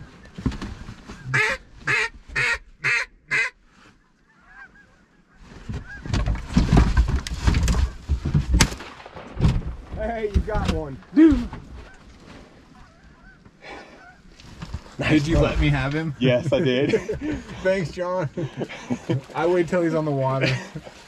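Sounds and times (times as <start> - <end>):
geese honking: 1.2 - 3.6, 4.3 - 6.1, 12.7 - 14.3
sharp crack: 8.4 - 10.8.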